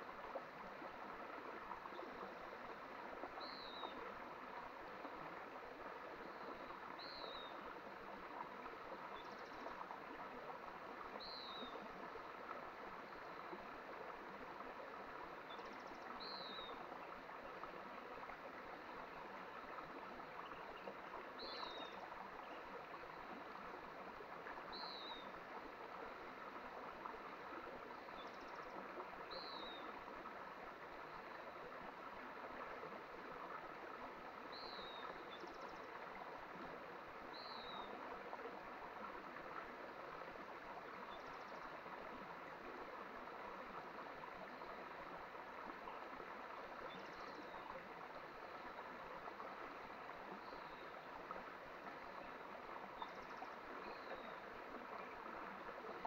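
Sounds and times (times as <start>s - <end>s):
mountain stream running: 0.0s - 56.0s.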